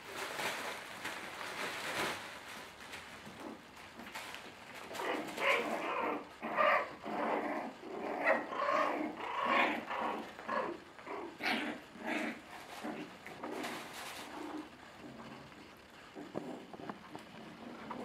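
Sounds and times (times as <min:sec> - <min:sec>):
puppies growling and yipping: 0:04.8 - 0:18.0.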